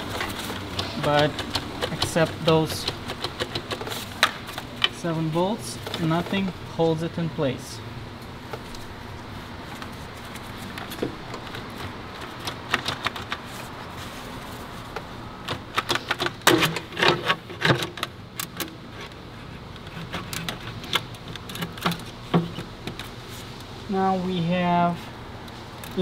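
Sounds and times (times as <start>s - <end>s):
plastic manifold clicks and knocks: 0.0s - 5.0s, 10.7s - 13.5s, 20.2s - 23.1s.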